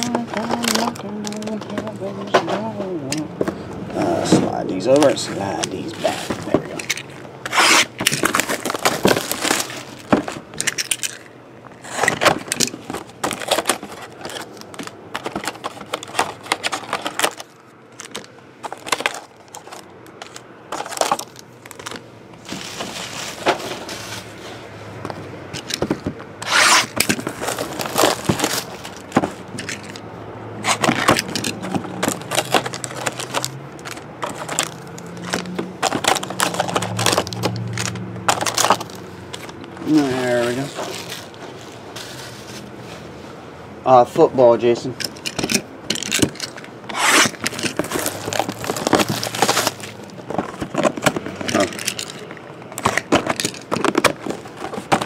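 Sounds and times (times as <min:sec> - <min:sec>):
packs being torn open: 0:00.0 - 0:01.7, 0:04.9 - 0:23.4, 0:25.6 - 0:30.0, 0:30.6 - 0:41.4, 0:45.2 - 0:55.0
plastic wrapper crinkling: 0:00.0 - 0:02.1, 0:04.9 - 0:24.4, 0:25.6 - 0:30.0, 0:30.6 - 0:42.7, 0:45.1 - 0:55.0.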